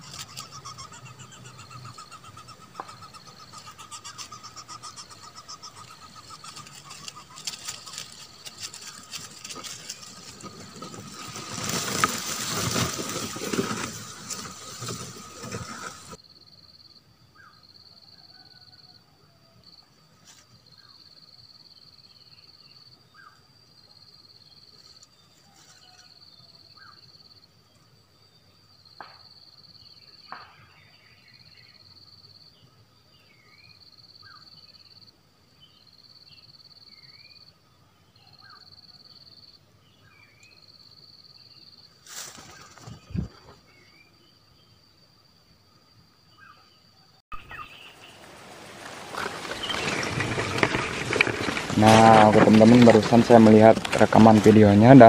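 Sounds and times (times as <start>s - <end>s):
birds chirping: 0.0s - 16.2s, 47.3s - 55.0s
grass and dry leaves rustling: 0.0s - 16.2s, 24.7s - 26.2s, 42.0s - 43.7s, 47.4s - 55.0s
high insect-like buzz: 0.0s - 16.2s.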